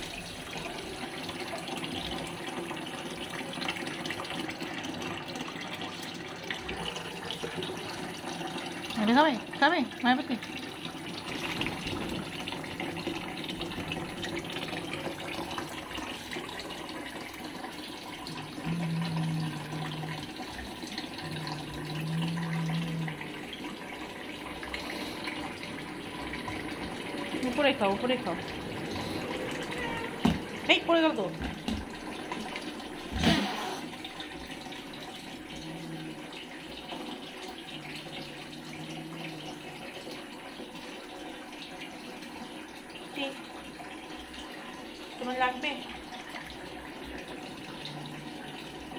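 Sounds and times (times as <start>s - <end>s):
tap water running into a sink: 0.0s - 48.9s
cat growling: 18.3s - 23.5s, 35.3s - 36.3s, 37.8s - 39.8s
cat hissing: 33.2s - 33.9s.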